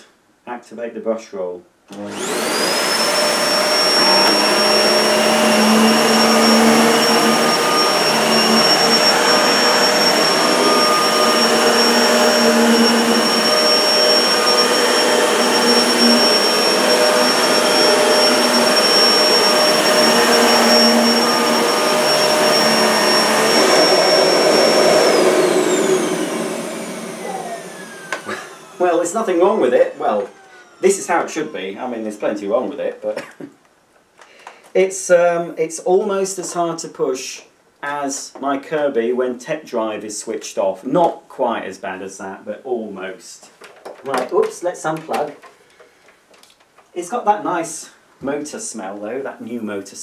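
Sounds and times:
upright vacuum cleaner running: 1.9 - 32.8
vacuum motor spinning down: 2.0 - 31.8.

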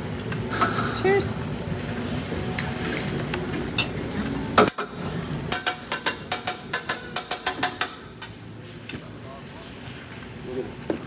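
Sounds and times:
food frying on griddle: 0.0 - 11.0
metal spatulas clacking on griddle: 5.5 - 8.3.

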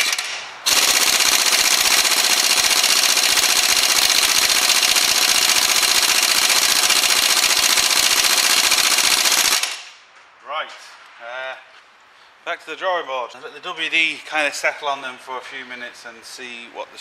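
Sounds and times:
impact wrench hammering: 0.0 - 9.8.

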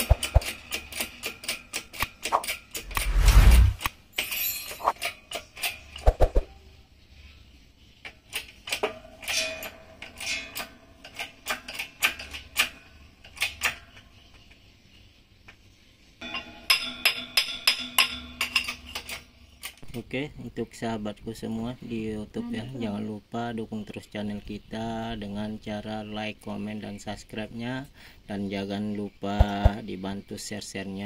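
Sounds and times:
metal tools clinking and clattering: 4.1 - 6.0, 8.6 - 13.7.

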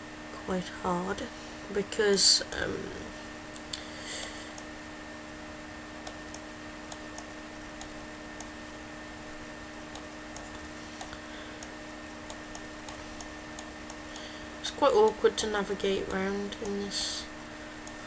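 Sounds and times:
low electrical hum: 0.0 - 18.0
computer mouse clicking: 9.9 - 14.0.

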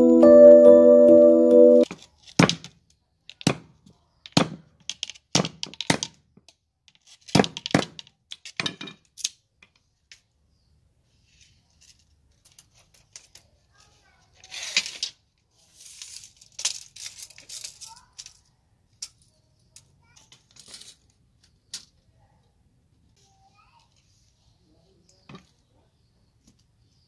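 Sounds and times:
machete chopping bamboo on wood: 4.3 - 6.1.

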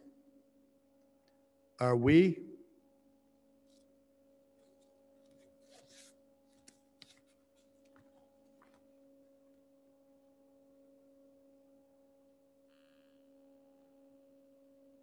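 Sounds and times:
faint steady hum: 0.0 - 15.0
paper rustling: 4.6 - 8.8.

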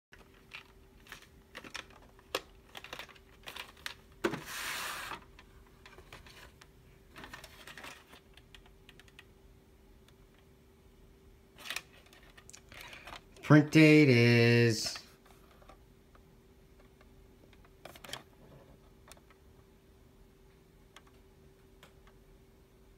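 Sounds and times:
plastic tape rattling: 0.2 - 4.0.

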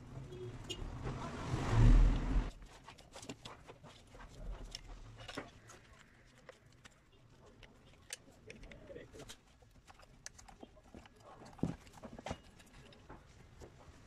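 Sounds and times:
loud rushing noise with low rumble: 0.8 - 2.5
screwdriver clicking and scraping: 2.6 - 13.1.

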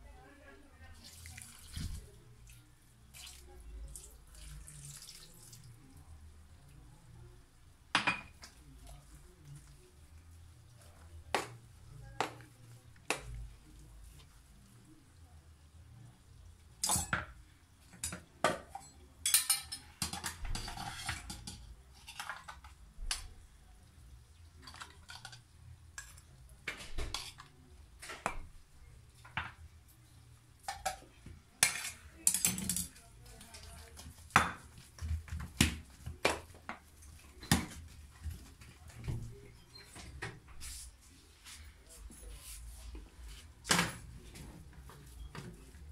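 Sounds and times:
metal spoon clinking on pot: 18.0 - 22.4, 31.6 - 33.0.

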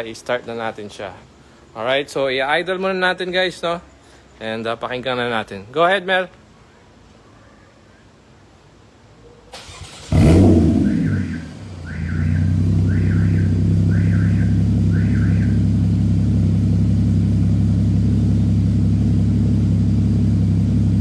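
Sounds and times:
car engine starting and idling: 9.5 - 21.0.

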